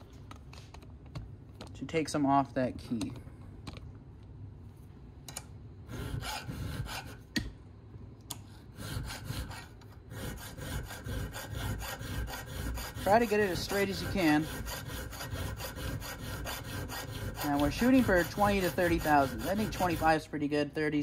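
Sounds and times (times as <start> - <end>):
file scraping metal: 5.9 - 7.2, 8.6 - 20.3.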